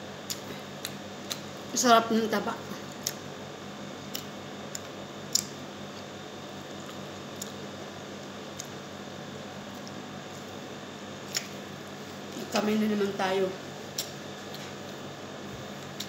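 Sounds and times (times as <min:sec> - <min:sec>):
low room hum: 0:00.0 - 0:16.0
person chewing: 0:00.3 - 0:01.5, 0:04.1 - 0:06.1, 0:06.7 - 0:07.6
mouth smacking clicks: 0:04.1 - 0:05.6, 0:11.3 - 0:11.5.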